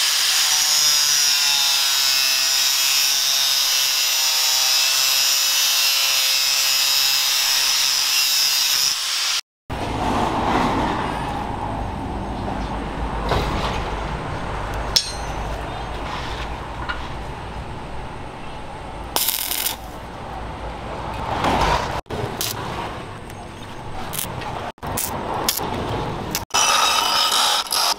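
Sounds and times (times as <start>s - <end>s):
angle grinder sanding steel: 26.4s - 27.9s.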